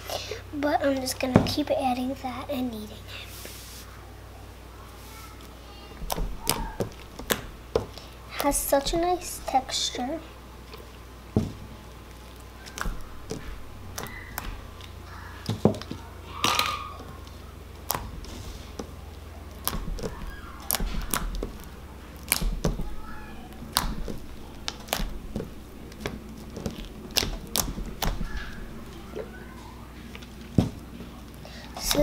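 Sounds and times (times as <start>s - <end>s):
slime squelching and popping: 6.0s - 9.8s, 10.7s - 32.0s.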